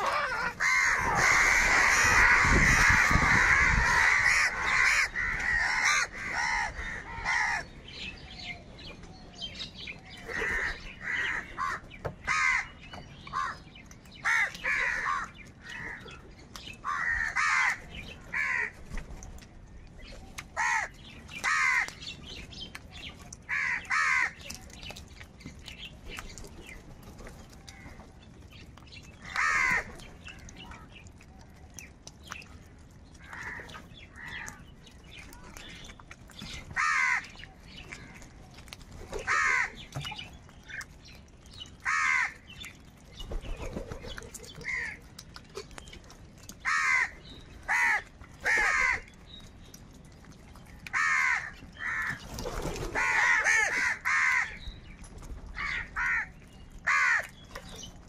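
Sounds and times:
crows cawing: 0.0 - 7.7, 10.3 - 13.6, 14.2 - 16.2, 16.8 - 18.8, 20.6 - 22.0, 23.5 - 24.4, 29.2 - 29.9, 36.8 - 37.4, 39.2 - 39.8, 41.8 - 42.4, 44.6 - 45.0, 46.6 - 49.2, 50.9 - 52.2, 52.9 - 54.6, 55.6 - 57.3.

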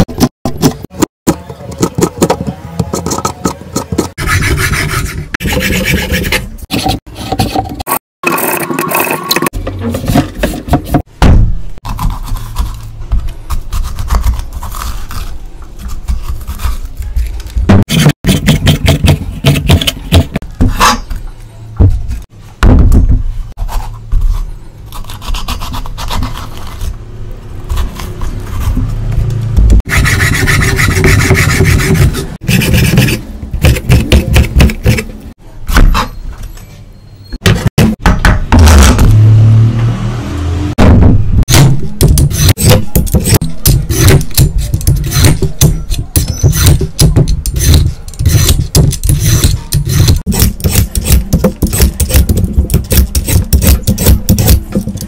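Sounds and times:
peeler scraping carrot: 11.8 - 20.1, 23.6 - 27.0, 27.6 - 29.1, 29.9 - 36.2, 42.0 - 55.0.

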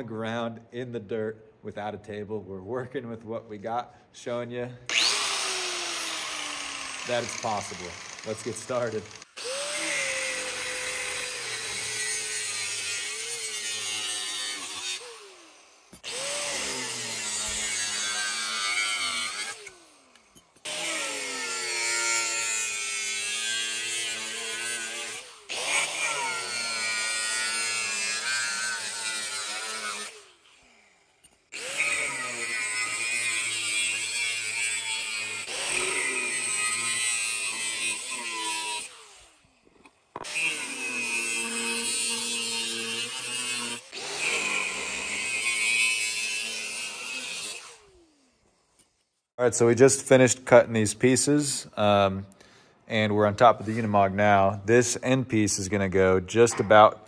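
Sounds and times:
angle grinder cutting steel: 4.9 - 49.0.

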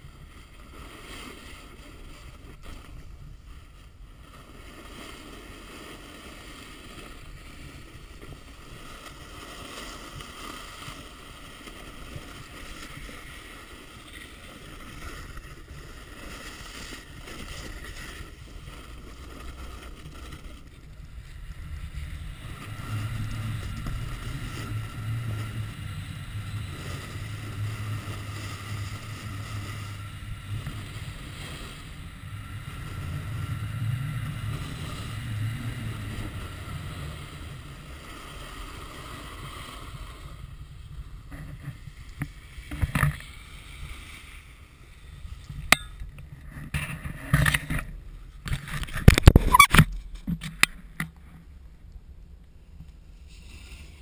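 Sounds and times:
snowboard scraping over snow: 0.0 - 45.6, 53.0 - 54.0
wind on microphone: 0.0 - 50.9.

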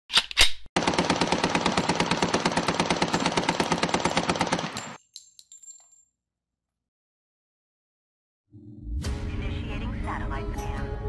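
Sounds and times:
rapid automatic gunfire: 0.8 - 5.0.

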